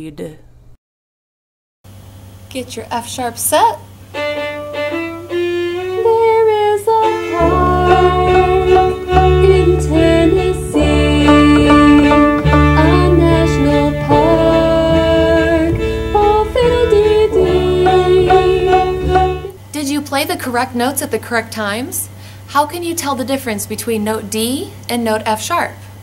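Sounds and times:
violin playing slowly: 4.1 - 19.6
recorded music accompaniment: 4.2 - 19.6
low bass part: 7.4 - 19.5.

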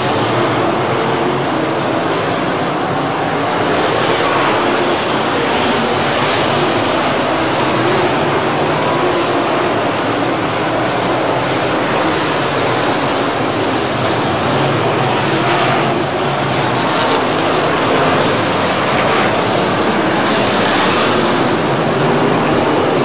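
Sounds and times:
race cars on dirt track: 0.0 - 23.0.

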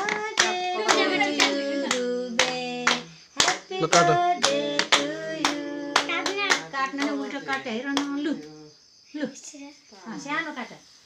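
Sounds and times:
hand-clapping in time: 0.0 - 8.2
voices singing together: 0.0 - 8.6.

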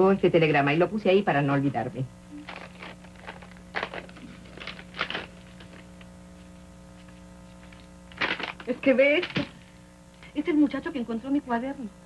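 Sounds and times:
steady low hum: 0.0 - 12.0
paper rustling: 2.4 - 9.6.

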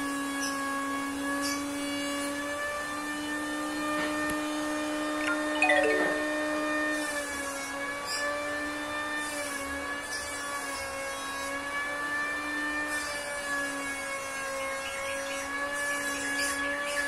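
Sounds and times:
notes sliding downward: 5.3 - 6.6.

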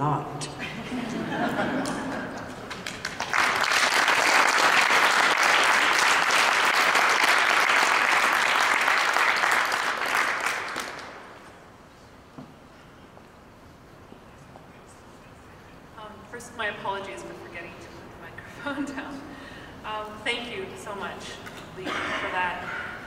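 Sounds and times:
audience applauding: 1.8 - 11.4.

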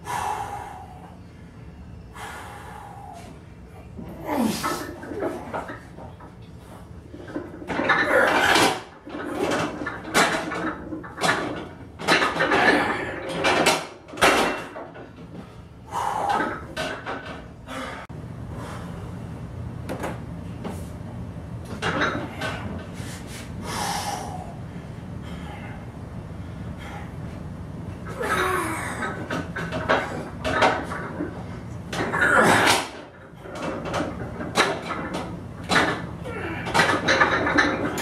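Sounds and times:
person breathing hard: 0.0 - 3.4, 15.6 - 16.5, 23.0 - 27.2
steady low hum: 0.0 - 38.0.

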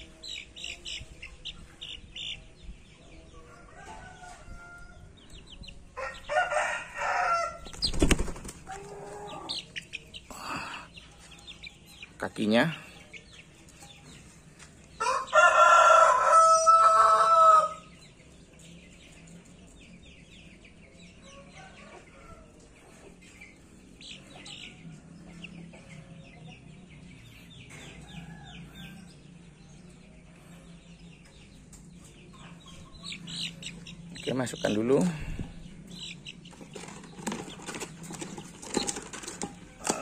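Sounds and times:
small birds chirping: 0.0 - 15.4, 16.0 - 40.0
rooster crowing: 6.0 - 7.6, 15.0 - 17.9.

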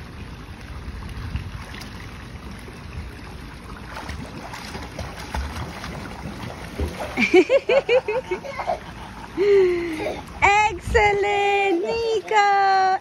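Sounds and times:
wind rumble on microphone: 0.7 - 1.8, 10.4 - 11.3
child splashing in pool: 1.4 - 10.4.

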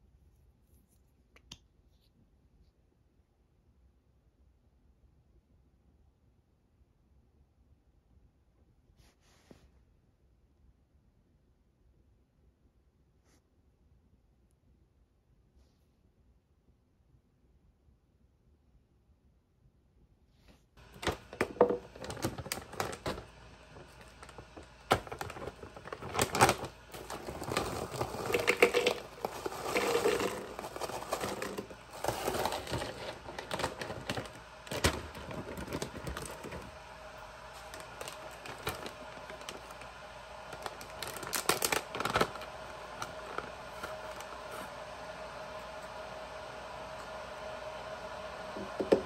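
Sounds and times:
frozen berries clattering into cup: 20.8 - 36.8, 37.4 - 39.9, 40.5 - 44.6
packaging bags crinkling: 20.8 - 44.7.

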